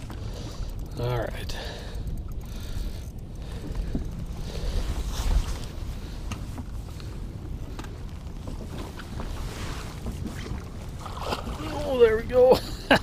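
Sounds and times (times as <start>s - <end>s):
wind rumbling on microphone: 0.0s - 12.1s
water lapping against boat: 1.5s - 13.0s.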